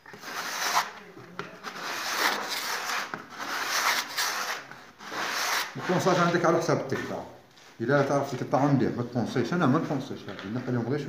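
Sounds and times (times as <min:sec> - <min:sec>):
sandpaper rasping on plasterboard: 0:00.1 - 0:01.0, 0:01.6 - 0:06.4.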